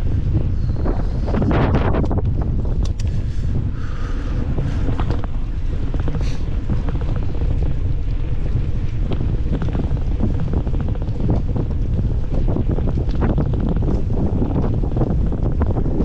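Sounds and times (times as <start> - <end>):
wind buffeting microphone: 0.0 - 16.0
light clicks and rattles: 1.6 - 3.4.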